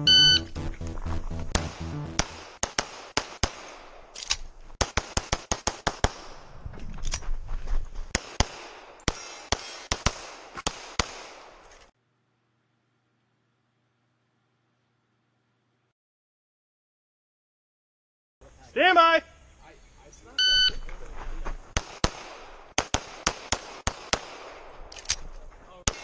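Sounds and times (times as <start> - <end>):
pistol shots echoing: 1.6 - 4.2, 4.8 - 6.5, 8.1 - 11.6, 21.8 - 24.9.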